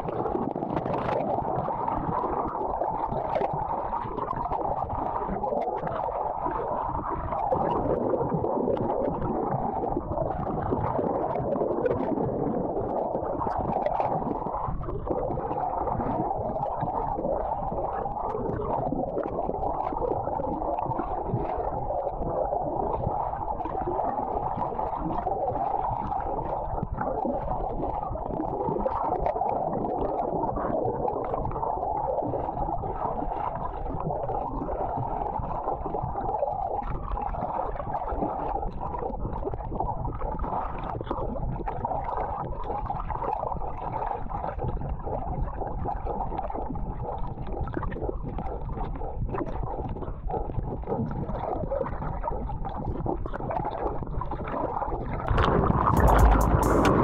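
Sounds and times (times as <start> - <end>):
muffled underwater surf rushing: 53.6 - 57.0.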